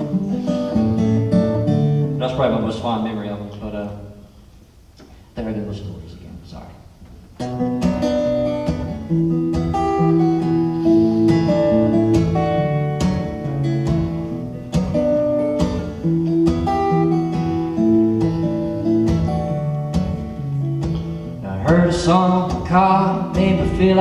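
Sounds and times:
acoustic guitar strumming: 0:00.0 - 0:04.6, 0:07.0 - 0:24.0.

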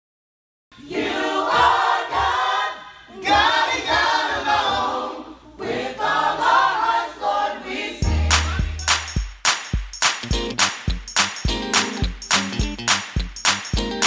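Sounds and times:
choir singing: 0:00.8 - 0:08.9.

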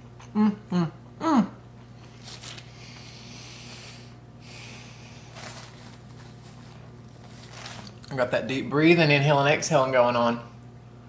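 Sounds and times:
heavy breathing through nose and mouth: 0:02.6 - 0:05.9.

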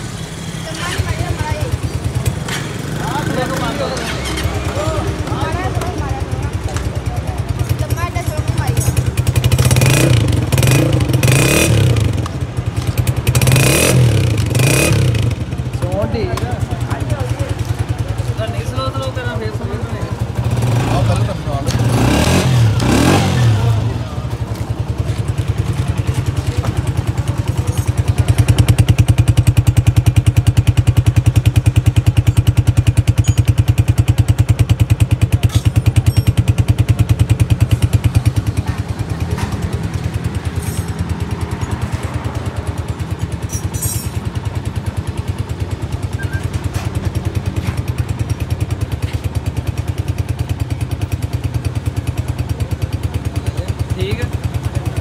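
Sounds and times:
motorcycle engine idling: 0:00.0 - 0:55.0.

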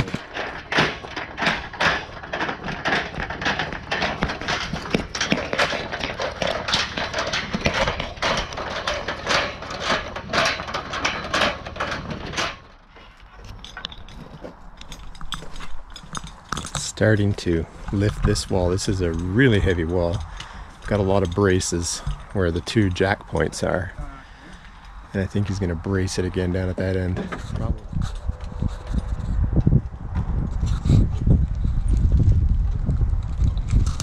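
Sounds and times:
footsteps crunching on gravel: 0:00.0 - 0:12.0.

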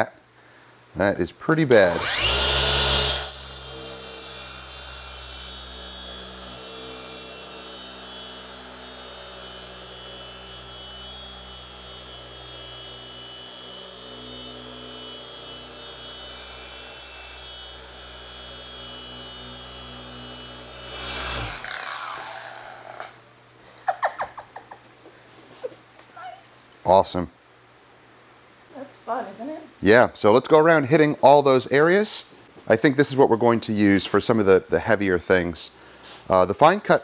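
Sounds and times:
polisher running: 0:01.9 - 0:23.2.

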